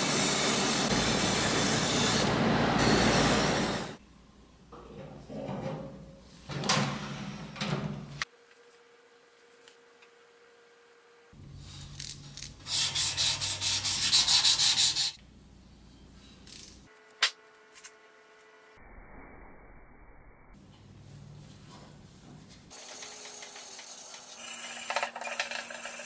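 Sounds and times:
hand sanding metal: 12.6s - 15.2s.

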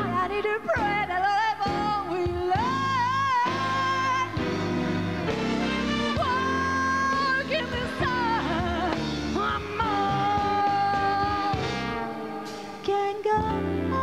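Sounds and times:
big band playing: 0.0s - 14.0s
woman singing jazz ballad: 0.0s - 14.0s.

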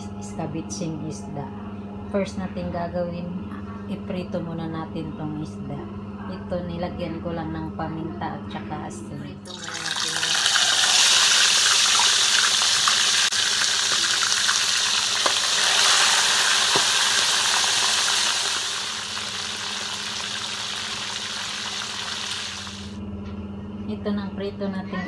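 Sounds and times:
fish sizzling in hot oil: 9.5s - 22.9s.

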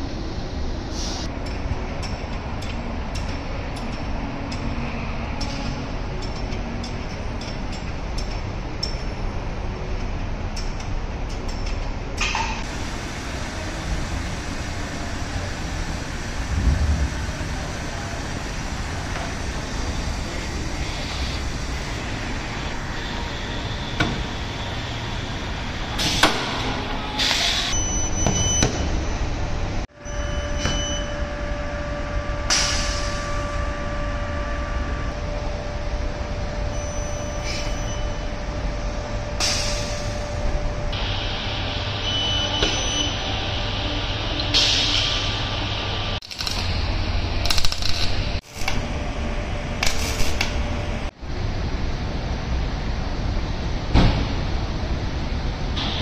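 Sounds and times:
steady low rumble: 0.0s - 26.0s
loud thump: 16.5s - 17.7s.

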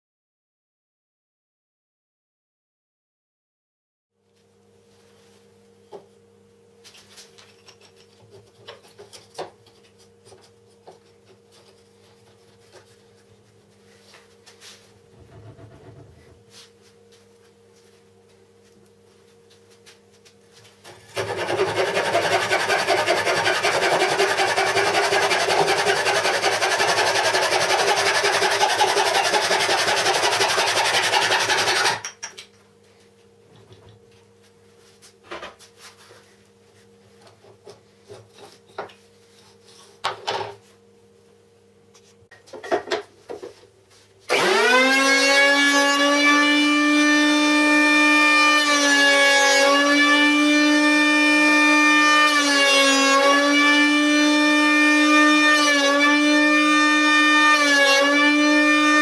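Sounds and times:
hand saw cutting wood: 21.1s - 32.1s, 44.3s - 47.4s.

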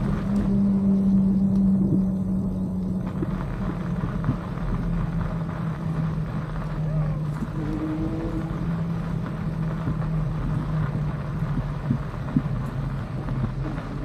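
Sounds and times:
electric bike humming: 0.0s - 14.0s
wind on microphone: 0.0s - 14.0s.

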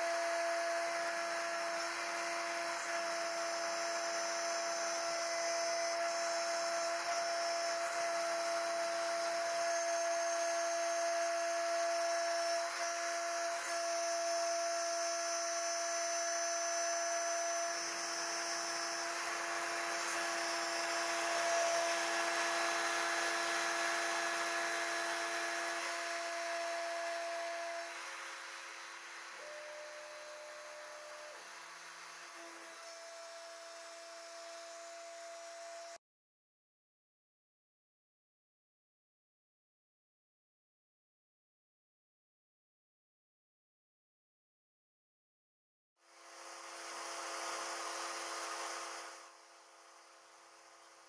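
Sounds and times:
router spindle whining: 0.0s - 36.0s, 46.3s - 51.0s.

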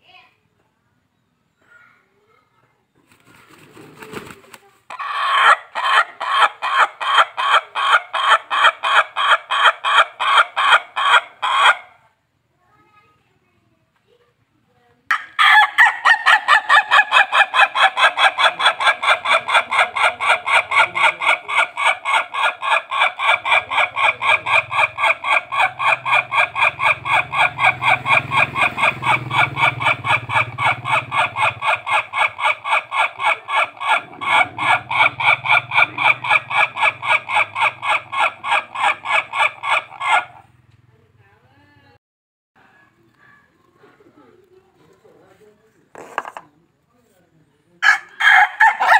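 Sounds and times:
rooster crowing in staccato notes: 47.8s - 48.9s.

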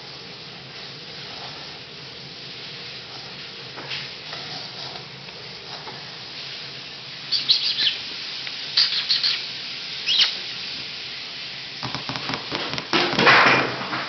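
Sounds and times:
shower running hiss: 0.0s - 14.0s
puppy yipping: 7.3s - 8.0s.

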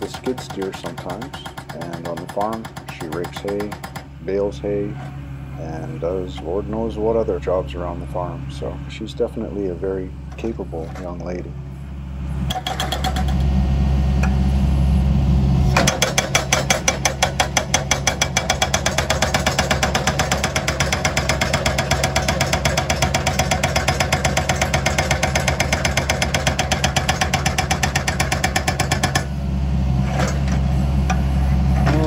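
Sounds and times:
hydraulic breaker hammering rock: 0.0s - 4.4s, 12.5s - 13.5s, 15.7s - 29.3s
diesel engine running: 0.0s - 32.0s.

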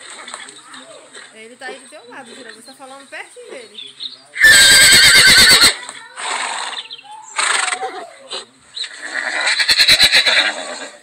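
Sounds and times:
horse whinnying and snorting: 4.4s - 11.0s.

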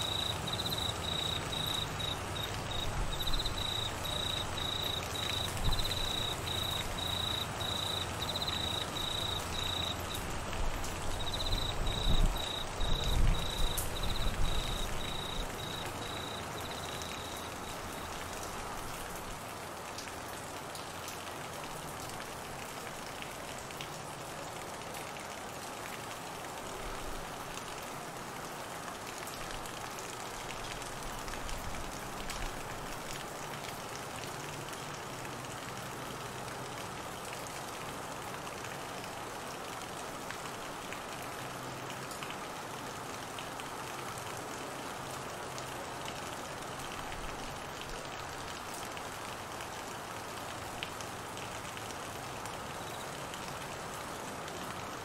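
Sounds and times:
crickets trilling: 0.0s - 18.1s, 52.8s - 53.0s
steady rain falling: 0.0s - 55.0s.

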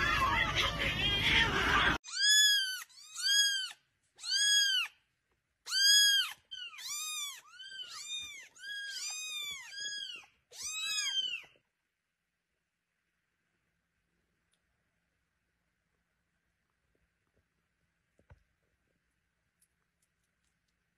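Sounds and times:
kittens meowing: 2.0s - 5.0s, 5.7s - 11.6s.

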